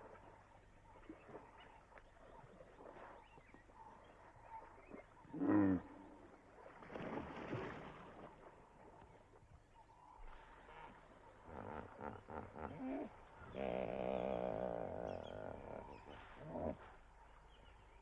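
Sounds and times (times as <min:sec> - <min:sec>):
large animal grunting call: 0:05.3 - 0:06.2, 0:11.4 - 0:16.8.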